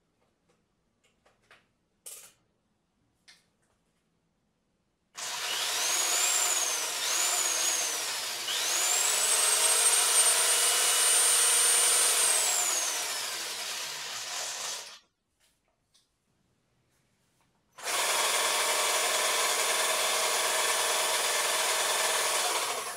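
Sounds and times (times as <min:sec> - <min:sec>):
cordless drill motor whine: 0:05.2 - 0:15.0, 0:17.8 - 0:22.9.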